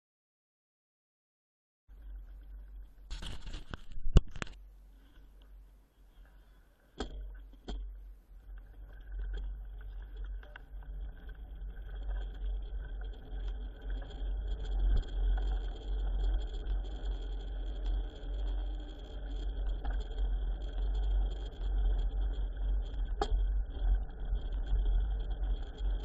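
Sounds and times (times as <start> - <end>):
bike tyres rolling on pavement: 8.4 - 26.0.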